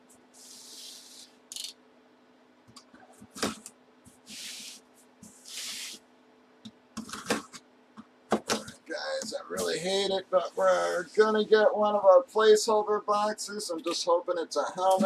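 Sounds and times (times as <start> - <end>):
cardboard and tape scraping: 3.3 - 6.0.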